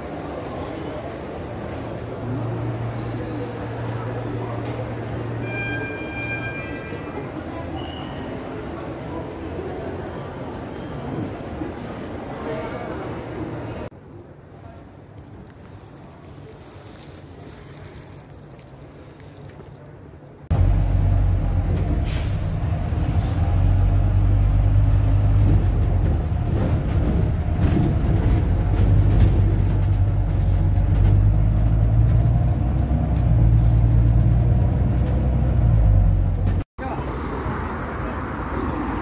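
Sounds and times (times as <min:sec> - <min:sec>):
street noise: 0:00.0 - 0:39.0
bus engine drone: 0:20.4 - 0:39.0.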